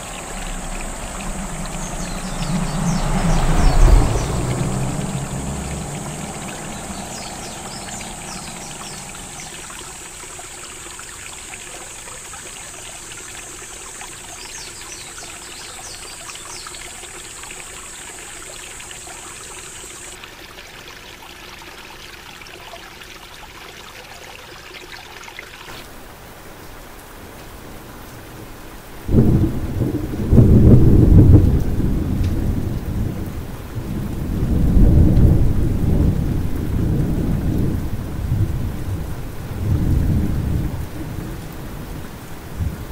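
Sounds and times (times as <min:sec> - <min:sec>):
rumbling thunder: 0:00.0 - 0:10.0, 0:29.1 - 0:42.9
insects droning: 0:00.0 - 0:20.2, 0:28.6 - 0:42.9
heavy rain: 0:00.0 - 0:20.3, 0:25.7 - 0:42.9.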